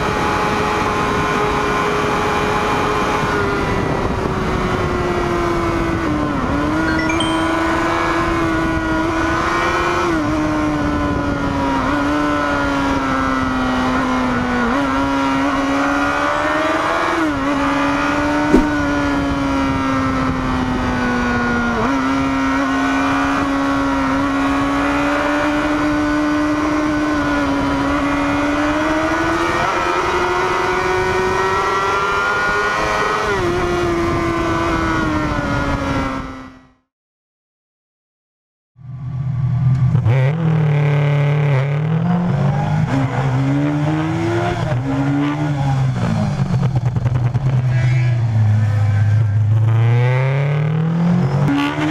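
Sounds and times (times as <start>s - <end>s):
sharp click: 18.5s - 18.9s
motorcycle engine running: 18.5s - 19.3s.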